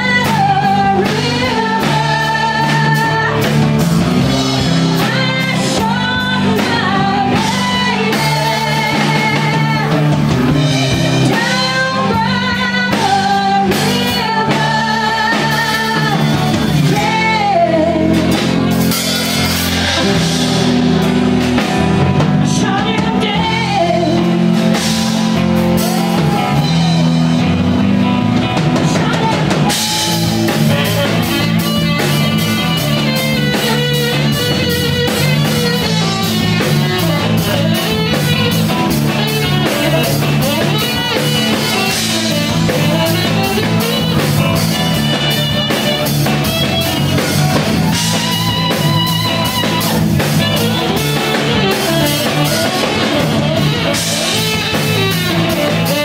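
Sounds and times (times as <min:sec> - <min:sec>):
woman singing: 0:00.0 - 0:03.6, 0:04.6 - 0:10.2, 0:11.2 - 0:18.6, 0:22.4 - 0:24.4, 0:28.8 - 0:30.1
drum kit: 0:00.0 - 0:56.0
electric guitar: 0:00.0 - 0:56.0.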